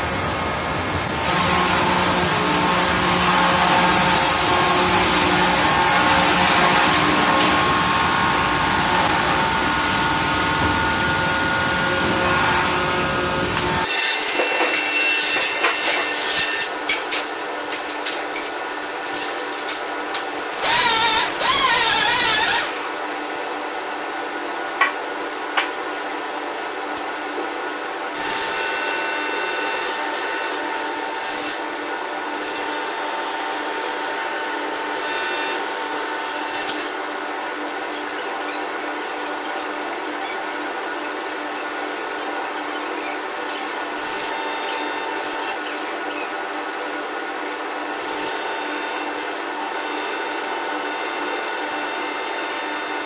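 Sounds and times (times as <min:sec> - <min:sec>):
sawmill sawing logs: 0:20.6 - 0:22.8.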